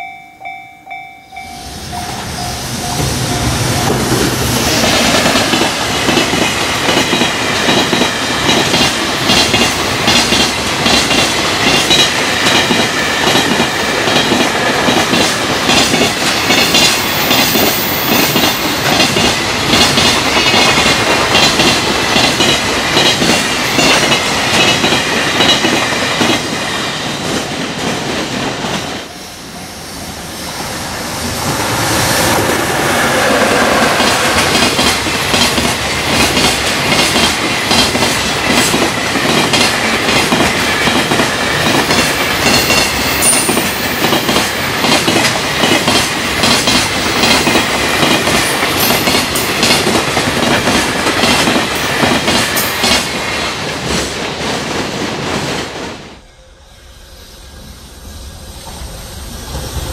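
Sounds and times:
level-crossing warning bell: 0:00.0 - 0:04.6, 0:40.1 - 0:46.0
freight train passing: 0:00.0 - 0:59.9.

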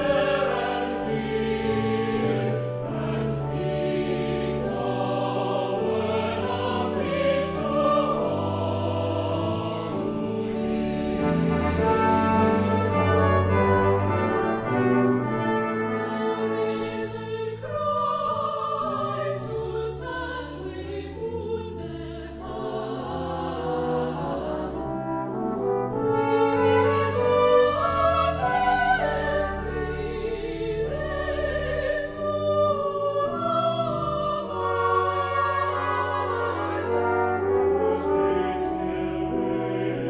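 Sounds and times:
brass ensemble playing slow chords: 0:00.0 - 0:16.9, 0:23.6 - 0:31.8, 0:34.6 - 0:40.0.

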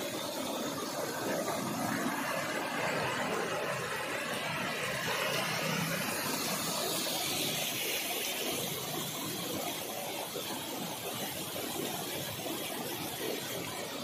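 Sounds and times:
floodwater running across road: 0:00.0 - 0:14.0.

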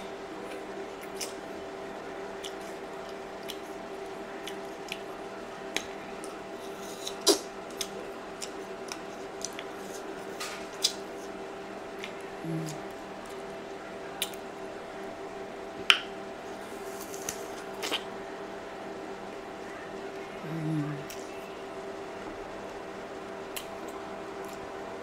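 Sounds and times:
faint steady hum: 0:00.0 - 0:25.0
chewing smacks and wet clicks: 0:00.4 - 0:01.5, 0:02.3 - 0:05.1, 0:05.7 - 0:11.3, 0:11.9 - 0:13.4, 0:14.2 - 0:14.5, 0:16.9 - 0:18.1, 0:23.5 - 0:24.7.

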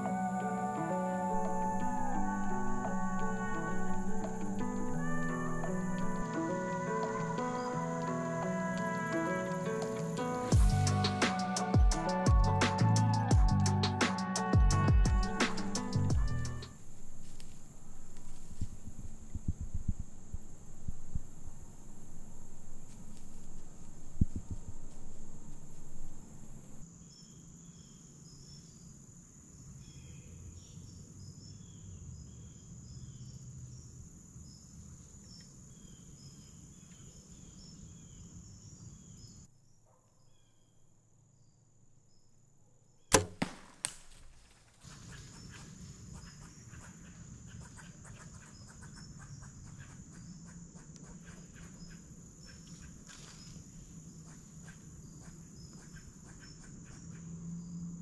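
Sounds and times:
crickets and insects chirping: 0:00.0 - 0:58.0
bow shot crack: 0:15.4 - 0:15.9, 0:43.1 - 0:45.1.

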